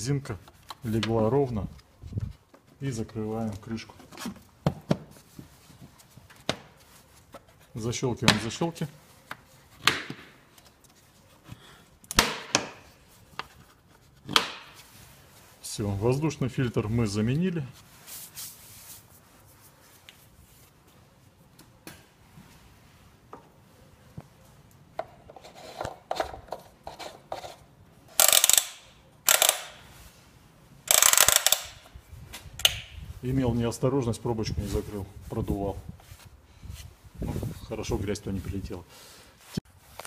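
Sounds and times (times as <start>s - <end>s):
loud rasping bursts: 30.9s - 31.8s.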